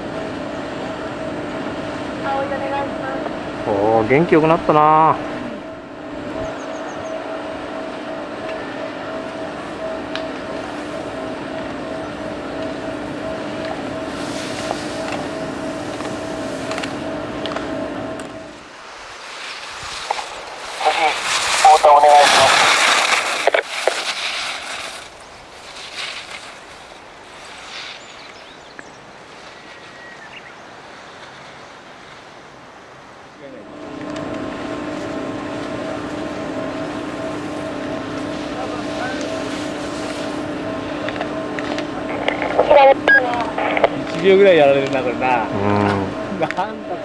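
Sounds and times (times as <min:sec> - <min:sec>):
two-tone machine hum: 0:00.0 - 0:30.8, 0:32.5 - 0:47.0
steady outdoor hiss: 0:00.0 - 0:47.0
ski edges scraping hard snow: 0:12.7 - 0:17.7, 0:18.5 - 0:28.6, 0:38.2 - 0:42.8
even hiss: 0:18.5 - 0:33.7.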